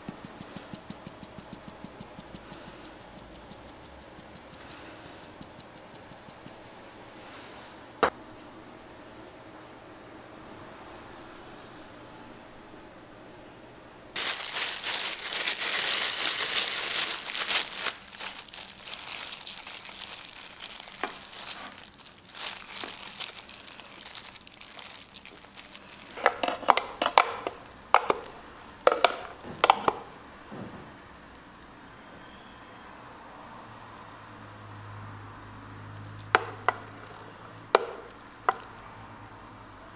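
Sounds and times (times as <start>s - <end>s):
crumbs rustling: 14.2s - 30.0s, 36.1s - 38.8s
plastic gloves crinkling: 14.2s - 30.2s, 36.1s - 38.8s.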